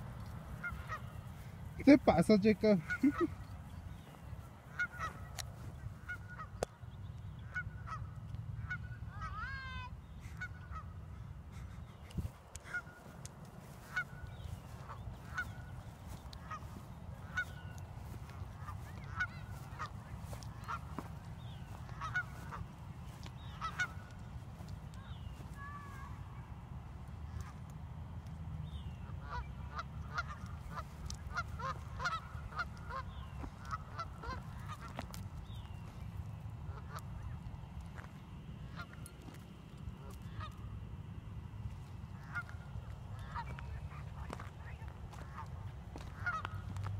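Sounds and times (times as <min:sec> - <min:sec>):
geese honking: 0:00.0 - 0:03.5, 0:04.5 - 0:06.6, 0:07.4 - 0:26.0, 0:28.8 - 0:36.0, 0:36.6 - 0:40.7, 0:41.7 - 0:46.9
steady low rumble: 0:10.0 - 0:46.9.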